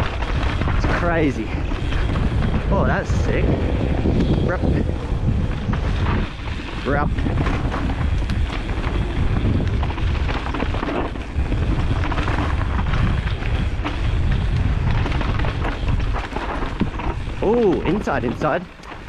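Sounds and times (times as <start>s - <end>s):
bike knocking and rattling: 0.0s - 19.0s
bike tyres rolling over dirt: 0.0s - 19.0s
wind buffeting microphone: 0.0s - 19.0s.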